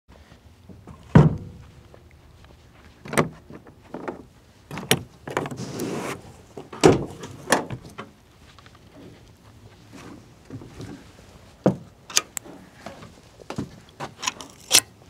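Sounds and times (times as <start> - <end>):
loud thump: 1.2 - 1.6.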